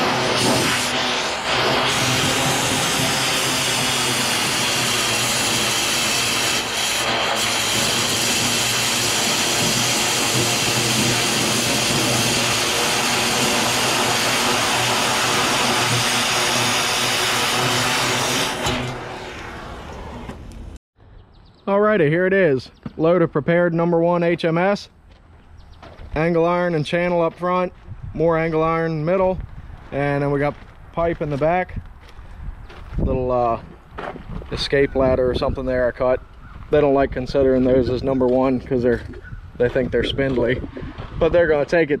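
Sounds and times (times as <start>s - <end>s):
cutting torch hissing: 0.0s - 20.8s.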